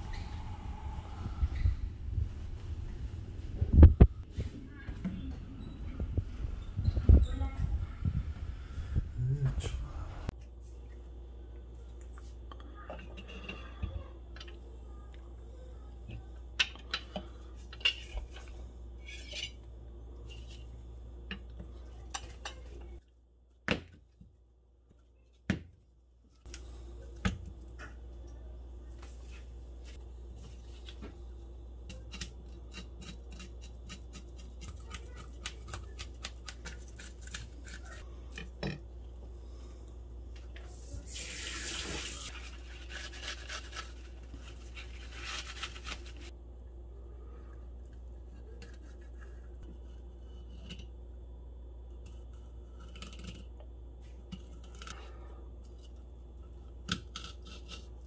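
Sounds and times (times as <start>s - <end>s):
low hum: 0.0s - 25.2s.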